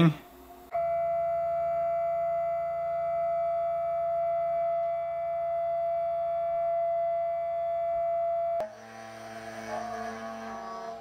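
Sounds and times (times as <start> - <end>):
low hum: 0.0 - 11.0
router spindle motor whine: 8.6 - 11.0.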